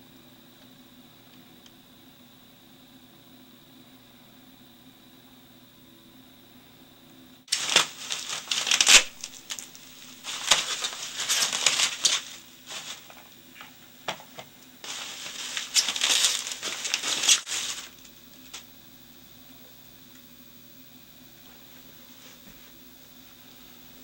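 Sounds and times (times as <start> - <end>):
plastic wrapping crinkling: 7.5 - 18.6.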